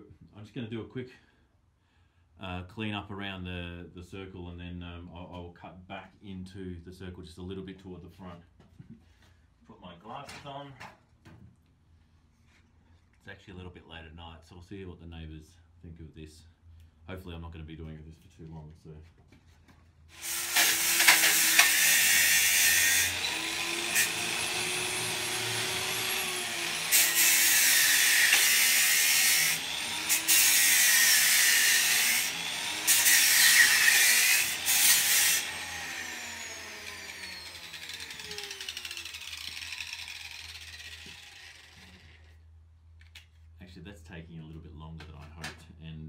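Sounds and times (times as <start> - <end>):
angle grinder grinding steel: 20.2 - 42.4
motor winding down whine: 35.4 - 42.4.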